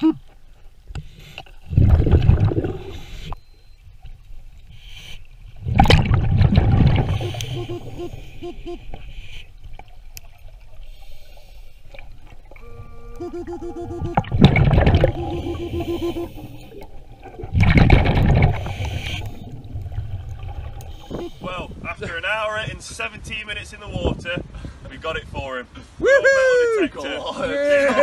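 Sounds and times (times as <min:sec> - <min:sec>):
exhaled breath bubbling underwater: 0:01.6 - 0:03.4, 0:04.7 - 0:09.5, 0:13.2 - 0:21.5
short beeps: 0:03.2 - 0:03.9, 0:07.1 - 0:08.8, 0:12.5 - 0:16.7.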